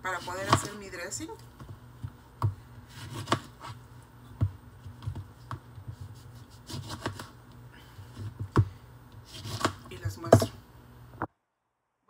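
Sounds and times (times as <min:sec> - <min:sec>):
faint knife scraping: 0:09.2 - 0:09.8.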